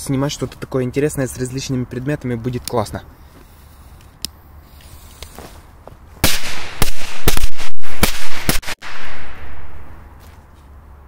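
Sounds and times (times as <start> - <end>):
firecrackers exploding: 6.2 - 9.9.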